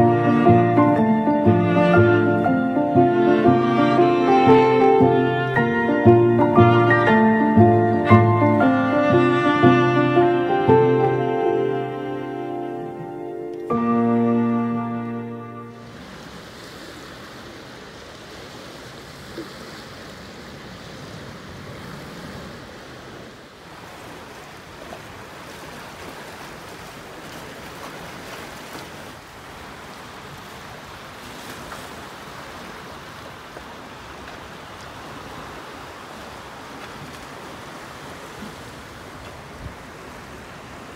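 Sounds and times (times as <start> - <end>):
lake water lapping at shore: 15.7 - 40.9.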